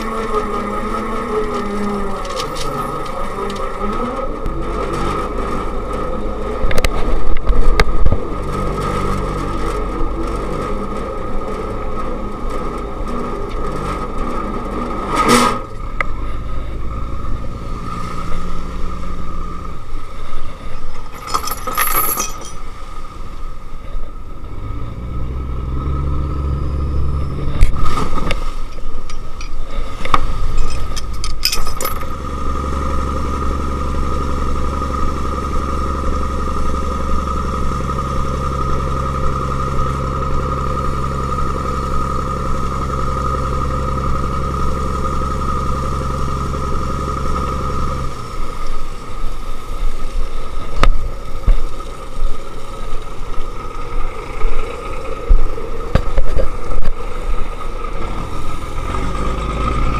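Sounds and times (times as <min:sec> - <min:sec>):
boat engine running: 0:00.0 - 0:59.9
engine whine: 0:00.0 - 0:59.9.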